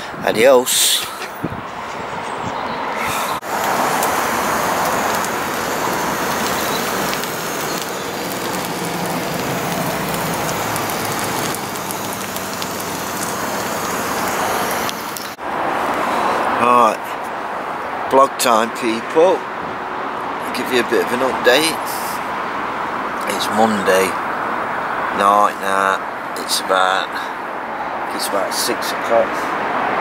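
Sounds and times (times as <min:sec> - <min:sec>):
food sizzling in metal tray: 0:03.4 - 0:15.4.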